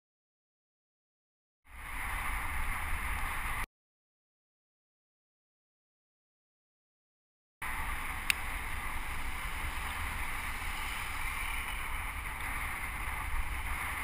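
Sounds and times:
bicycle road noise: 1.7 - 3.7, 7.6 - 14.0
wind buffeting microphone: 7.6 - 14.0.

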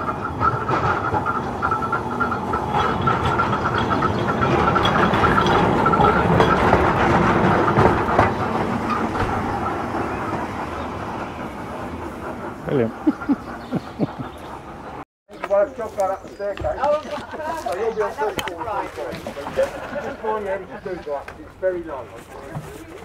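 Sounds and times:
electric tram running past: 0.0 - 16.6
tram clicks and clanks: 0.0 - 23.0.

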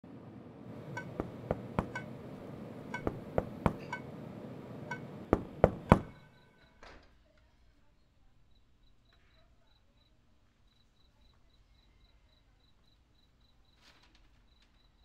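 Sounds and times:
knocks on a door: 0.7 - 6.3.

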